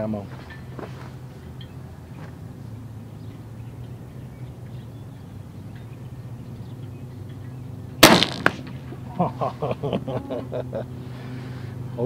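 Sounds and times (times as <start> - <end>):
low steady hum: 0.0 - 12.0
air pistol firing: 8.0 - 8.8
bullet striking can target: 8.0 - 8.8.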